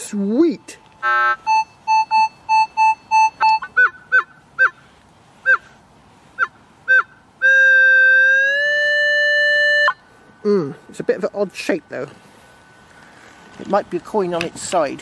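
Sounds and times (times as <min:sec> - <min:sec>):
metal detector steady tone: 0:00.5 - 0:04.8
metal detector chirps: 0:01.0 - 0:04.7.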